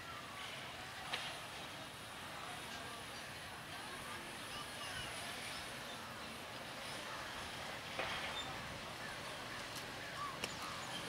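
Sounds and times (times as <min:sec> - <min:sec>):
crowd talking: 0:00.0 - 0:11.0
bird-like chirps: 0:10.0 - 0:11.0.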